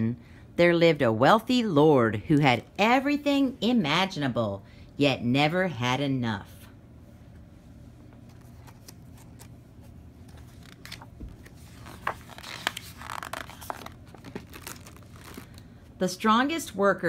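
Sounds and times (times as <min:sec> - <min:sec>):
paper rustling and crackling: 0:08.2 - 0:15.6.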